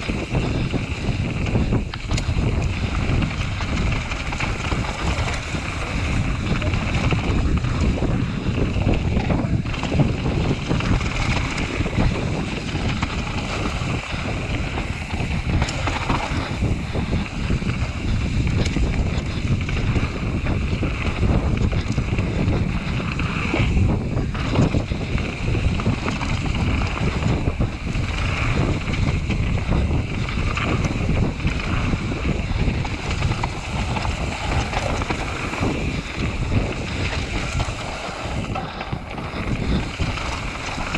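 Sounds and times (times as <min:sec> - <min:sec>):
mountain bike rumble and rattle: 0:00.0 - 0:40.9
wind buffeting microphone: 0:00.0 - 0:40.9.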